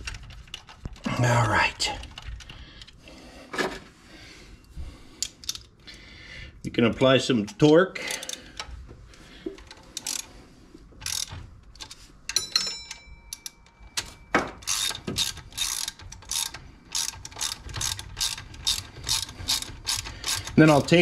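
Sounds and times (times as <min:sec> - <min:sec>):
ratchet wrench clicking: 0:08.1 - 0:08.4, 0:10.0 - 0:10.3, 0:11.0 - 0:12.0, 0:14.6 - 0:20.9
metallic clink: 0:12.3 - 0:14.4.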